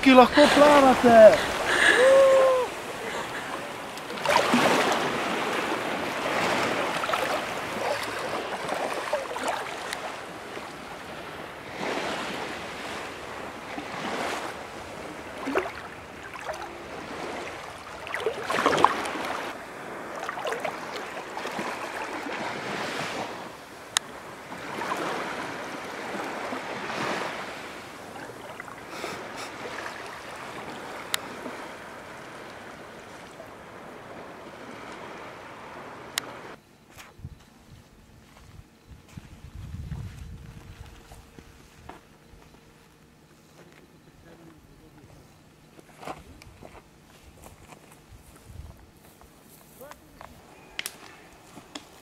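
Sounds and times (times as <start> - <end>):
sea waves washing onto shore: 0.0 - 36.6.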